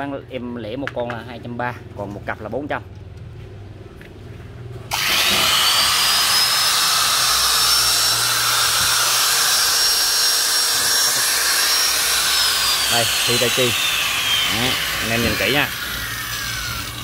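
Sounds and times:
angle grinder motor whine: 0:04.9 - 0:17.0.

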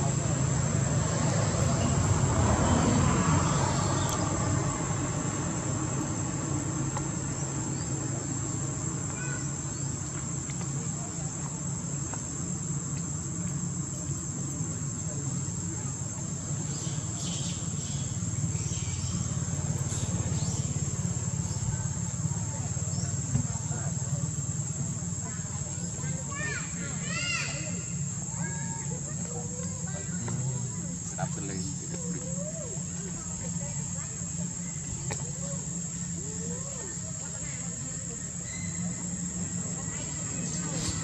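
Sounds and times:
low steady rumble: 0:00.0 - 0:26.8
insects droning: 0:00.0 - 0:41.0.

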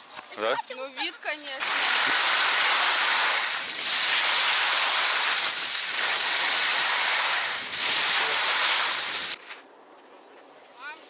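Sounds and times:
skis hissing over snow: 0:01.6 - 0:09.6.

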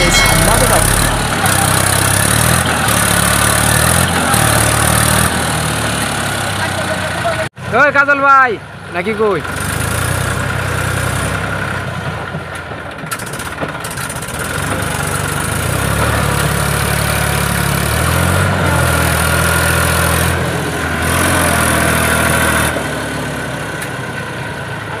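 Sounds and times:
tractor diesel engine straining: 0:00.0 - 0:07.5.

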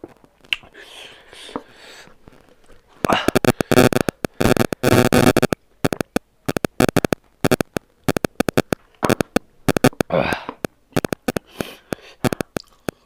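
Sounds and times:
wet eating clicks and smacks: 0:00.4 - 0:00.7, 0:05.4 - 0:13.0.

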